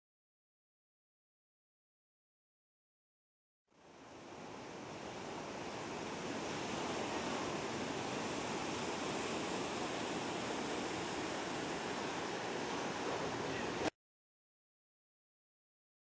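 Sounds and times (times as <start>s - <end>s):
ocean surf washing onto beach: 3.7s - 13.9s.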